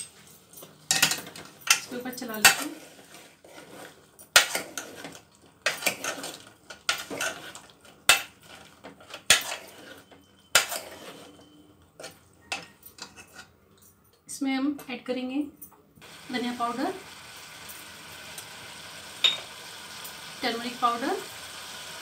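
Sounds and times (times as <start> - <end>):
spoon scraping metal pot: 2.4 - 7.7, 8.4 - 13.5.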